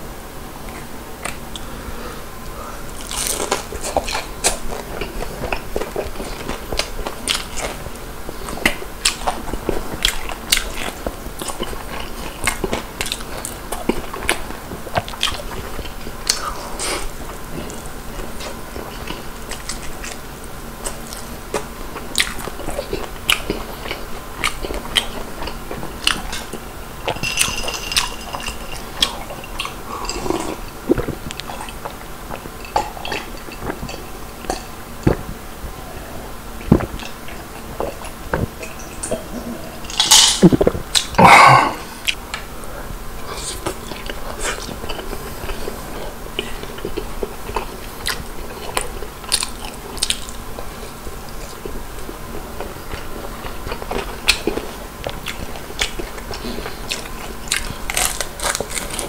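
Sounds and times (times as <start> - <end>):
chewing crispy chicken: 3.0 - 39.3, 43.2 - 59.0.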